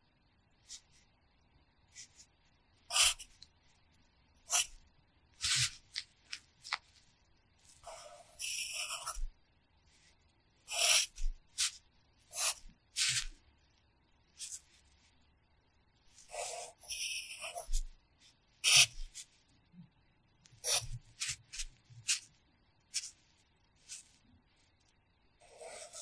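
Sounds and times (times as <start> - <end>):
pencil scratching on paper: 2.9 - 3.4, 4.5 - 4.8, 5.4 - 6.1, 7.7 - 9.3, 10.7 - 13.4, 14.4 - 14.9, 16.2 - 19.4, 20.6 - 22.3, 22.9 - 23.2, 23.8 - 24.2, 25.4 - 26.0.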